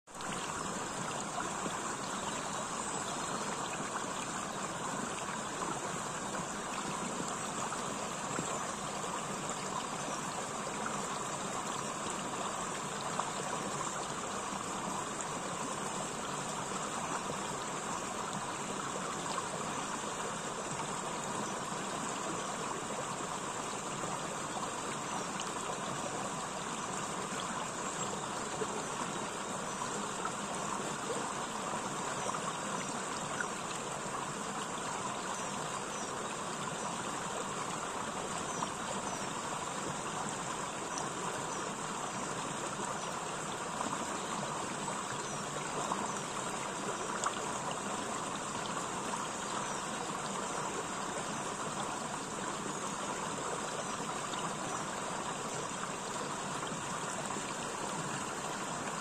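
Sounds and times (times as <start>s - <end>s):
stream rushing over stones: 0.1s - 59.0s.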